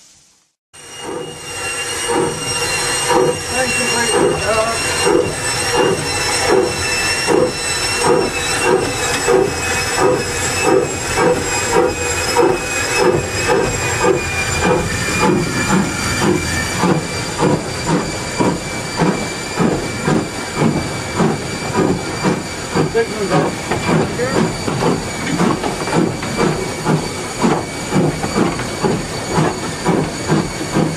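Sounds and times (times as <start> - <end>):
high hiss of steam: 0.0 - 20.0
steam locomotive exhaust chuff: 0.2 - 30.9.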